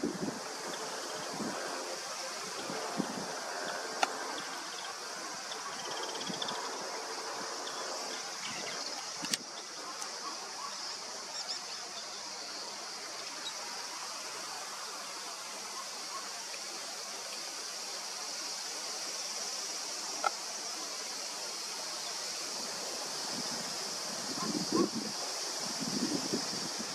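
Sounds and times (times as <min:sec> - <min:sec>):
outdoor background hiss: 0:00.0 - 0:26.9
sharp click: 0:09.2 - 0:10.1.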